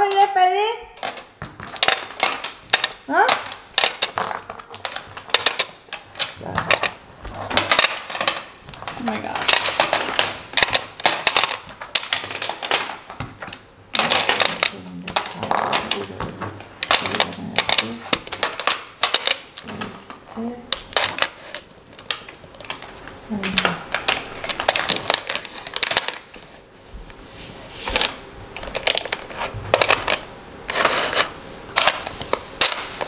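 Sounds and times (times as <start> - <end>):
plastic tiles clicking: 1.0 - 13.0.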